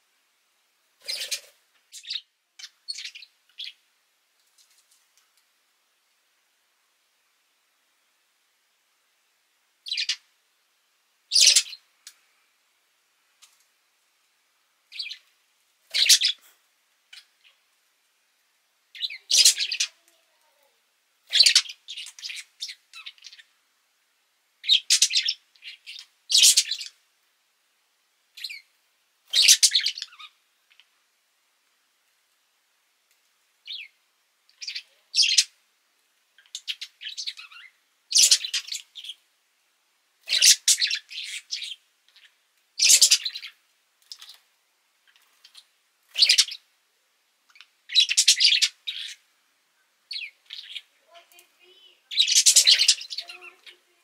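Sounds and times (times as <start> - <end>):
budgerigar chirping and chattering: 9.9 - 10.2, 11.3 - 11.8, 15.9 - 16.4, 19.0 - 19.9, 21.3 - 23.5, 24.6 - 27.0, 29.3 - 30.3, 34.6 - 35.5, 36.4 - 39.2, 40.3 - 43.5, 45.4 - 46.6, 47.9 - 49.2, 50.1 - 51.3, 52.1 - 53.8.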